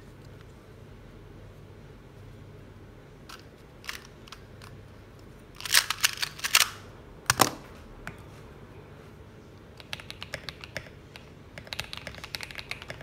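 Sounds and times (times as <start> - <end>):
mechanical keyboard keystrokes: 9.8 - 13.0.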